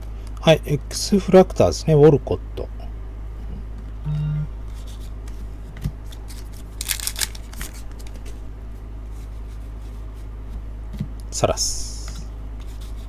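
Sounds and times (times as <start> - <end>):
steady low hum: 0.0 - 13.0
trading cards handled: 6.0 - 8.4.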